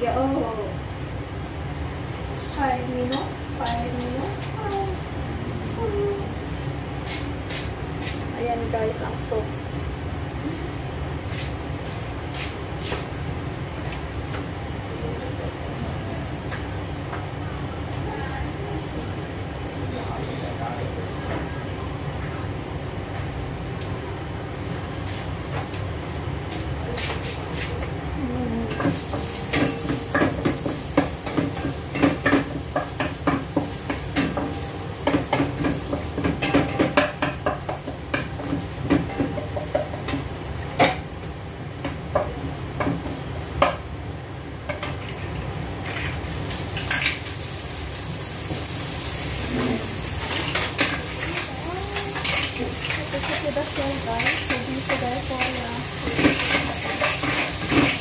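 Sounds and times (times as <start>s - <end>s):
metal utensil scraping a pan: 54.2s - 58.0s.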